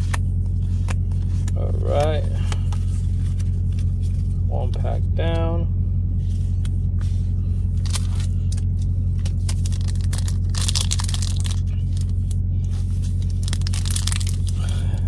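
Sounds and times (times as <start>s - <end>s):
idling truck drone: 0.0s - 15.0s
foil pack tearing and crinkling: 7.8s - 8.3s, 9.3s - 12.2s, 13.2s - 14.7s.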